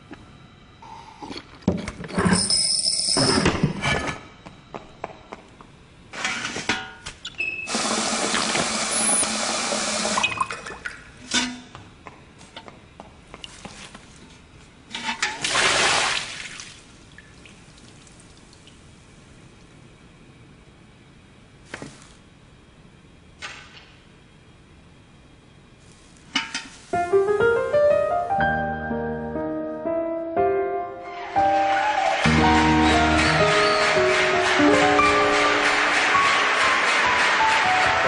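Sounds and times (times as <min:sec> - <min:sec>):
toilet flushing: 0:07.7 - 0:10.9, 0:15.3 - 0:16.8.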